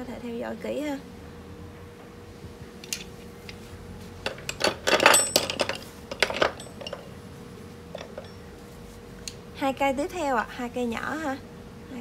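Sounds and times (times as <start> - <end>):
steel chisels clinking: 4.3 - 7.1.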